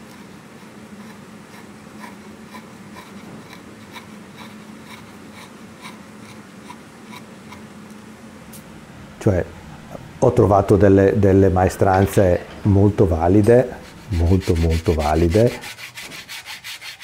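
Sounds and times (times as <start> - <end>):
chisel scraping wood: 0.0 - 7.7, 13.4 - 17.0
low hum: 7.7 - 15.7.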